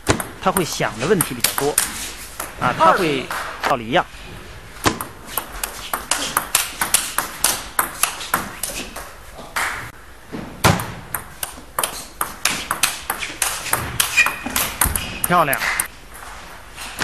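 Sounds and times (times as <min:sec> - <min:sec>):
table tennis ball clicking: 0:11.1 - 0:15.9.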